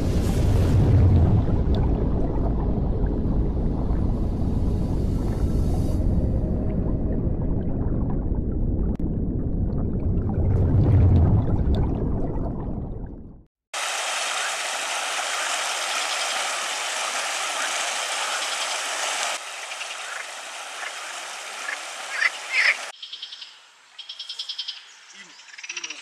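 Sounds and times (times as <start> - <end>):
frog chorus: 21.6 - 26.0
loud frog calls: 21.6 - 26.0.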